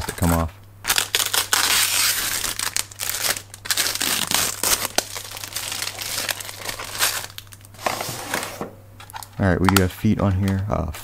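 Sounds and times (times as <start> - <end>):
plastic wrapping crinkling: 0.0 - 8.4, 9.0 - 9.8.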